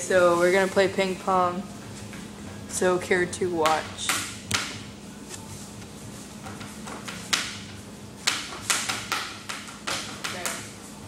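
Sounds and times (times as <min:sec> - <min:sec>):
table tennis ball bouncing: 0:06.5 - 0:10.7.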